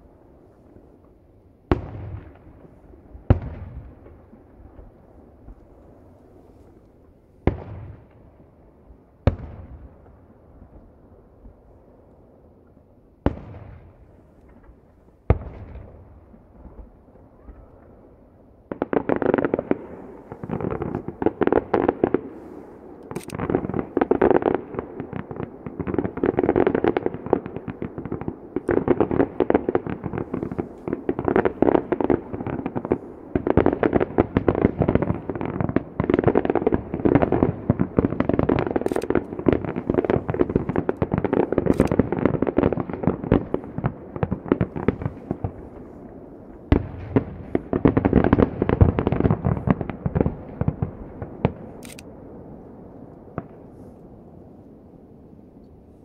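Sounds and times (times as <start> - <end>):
distant firework booms: 1.7 - 5.6, 9.2 - 10.8, 13.2 - 18.0, 18.7 - 51.8
sharp firework cracks: 18.7 - 52.2
rattle of firework pops: 38.2 - 42.3.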